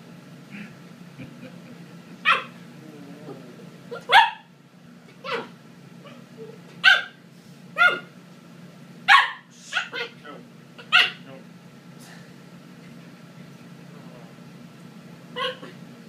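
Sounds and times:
puppy yapping: 0:02.2 - 0:02.6, 0:03.9 - 0:04.5, 0:05.2 - 0:06.2, 0:06.8 - 0:07.2, 0:07.8 - 0:08.1, 0:09.1 - 0:10.2, 0:10.8 - 0:11.2, 0:15.3 - 0:15.8.

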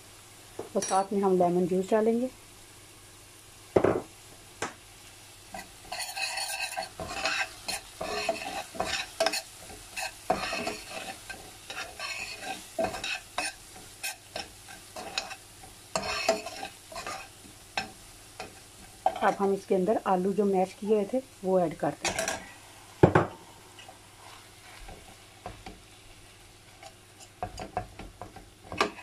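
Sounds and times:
frying food sizzling: 0:00.0 - 0:29.0
spoon scraping a steel pan: 0:05.9 - 0:15.4, 0:16.0 - 0:17.3.

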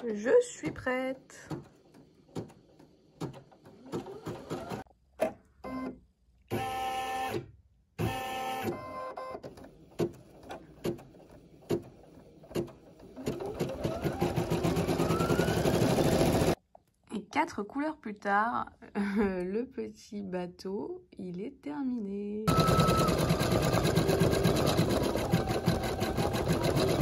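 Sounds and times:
embroidery machine motor whine: 0:22.5 - 0:27.0.

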